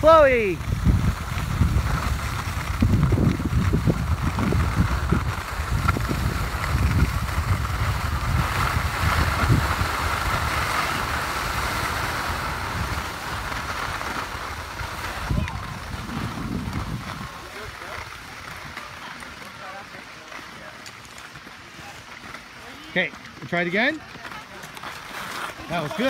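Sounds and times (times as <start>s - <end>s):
wind buffeting microphone: 0.0s - 19.4s
skis sliding on snow: 0.0s - 26.0s.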